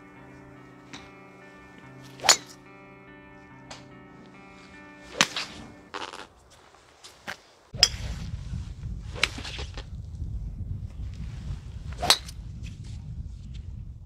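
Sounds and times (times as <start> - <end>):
background music: 0.0 - 6.3
golf clubs striking balls: 0.9 - 2.7, 3.6 - 6.4
low rumble: 7.8 - 14.0.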